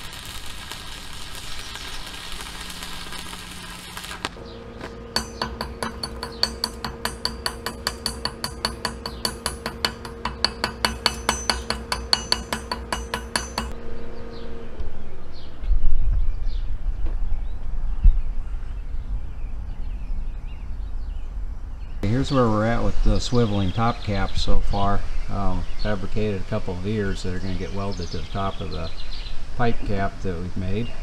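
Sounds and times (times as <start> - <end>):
arc welding crackling hiss: 0.0 - 13.7
chipping hammer tapping metal: 4.0 - 13.8.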